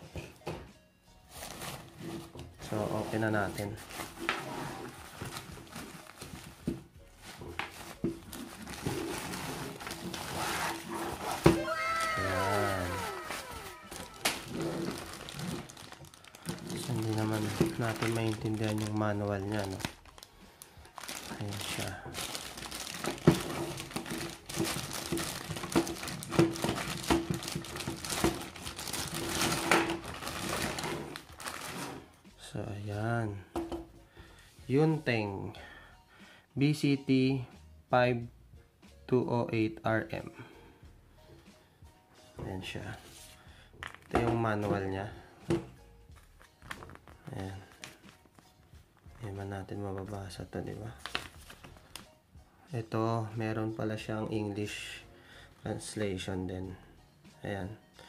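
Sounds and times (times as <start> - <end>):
cloth rustling: 1.3 - 20.2, 46.2 - 49.4, 51.0 - 52.0
plastic bag crinkling: 7.7 - 32.0, 51.0 - 52.0.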